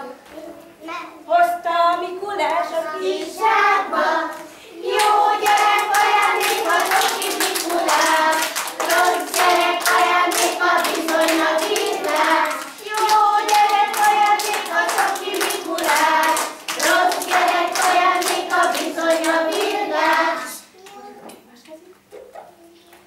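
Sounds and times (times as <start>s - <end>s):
children singing: 2.7s - 20.7s
rhythmic hand clapping: 4.3s - 21.0s.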